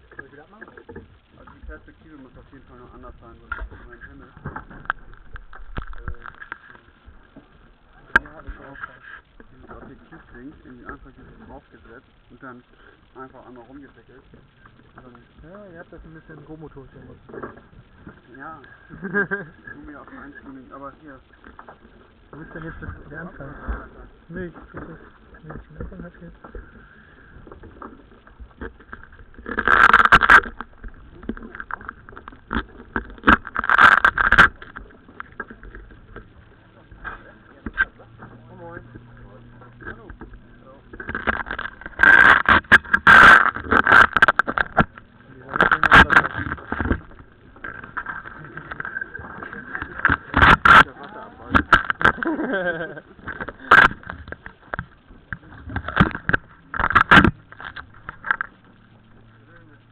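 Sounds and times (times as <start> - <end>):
camera rubbing and scraping: 0.0 - 59.9
faint high whine: 0.0 - 59.9.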